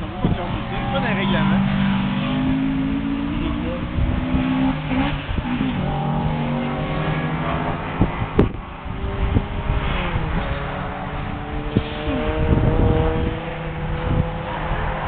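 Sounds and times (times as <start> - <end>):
race car engine revving: 0.0 - 15.0
sharp thumps: 1.6 - 8.6.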